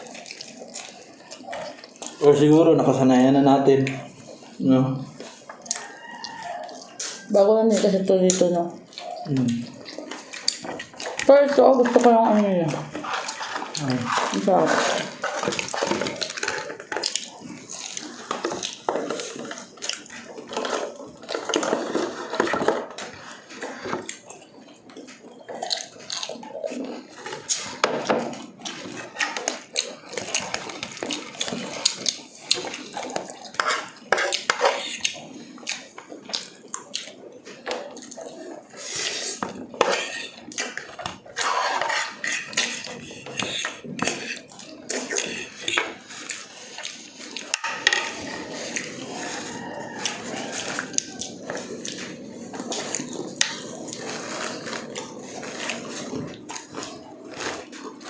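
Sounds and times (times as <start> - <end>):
person chewing food: 0.0 - 58.0.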